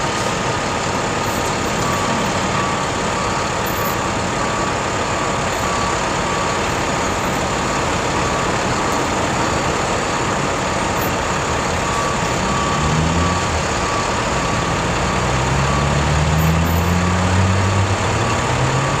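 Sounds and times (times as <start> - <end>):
backup alarm beeping: 1.1 - 17.0
truck engine revving: 6.8 - 19.0.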